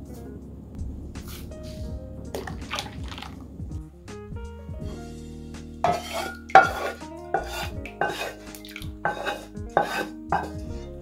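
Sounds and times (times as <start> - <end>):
background music: 0.0 - 11.0
utensil scraping in bowl: 5.8 - 10.6.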